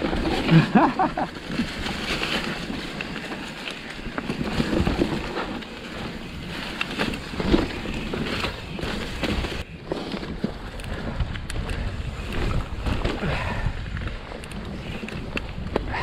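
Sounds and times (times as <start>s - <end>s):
bike knocks and rattles: 0.0s - 16.0s
bike tyre noise on dirt: 0.0s - 16.0s
wind rushing over microphone: 6.1s - 16.0s.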